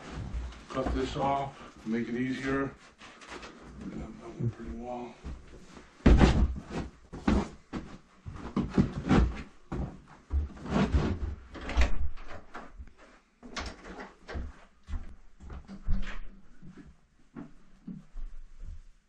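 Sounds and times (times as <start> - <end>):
carpet thumping and rustling: 5.2 - 11.4.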